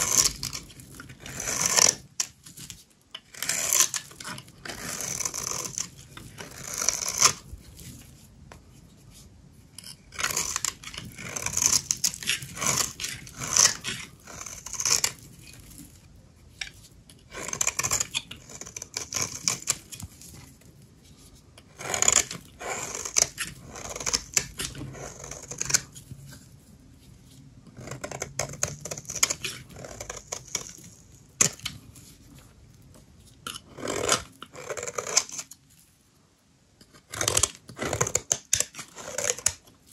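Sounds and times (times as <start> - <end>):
dry soap being cut crackling: 0.0 - 2.1, 9.8 - 15.2, 36.9 - 39.7.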